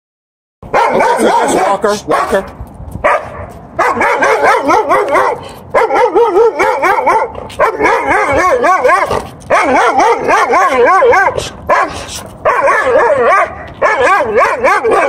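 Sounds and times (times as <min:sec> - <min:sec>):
dog yipping and whining: 0:03.8 - 0:11.4, 0:12.4 - 0:15.0.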